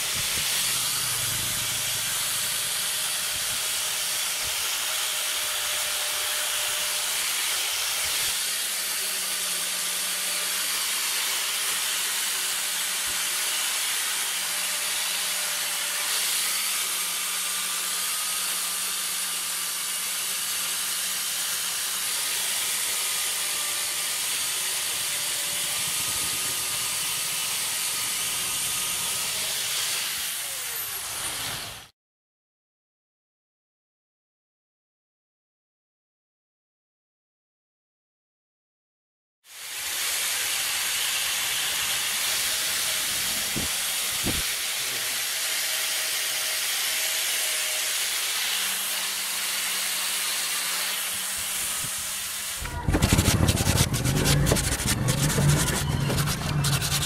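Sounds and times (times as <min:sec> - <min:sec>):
angle grinder on metal: 0:00.0 - 0:31.9, 0:39.5 - 0:57.0.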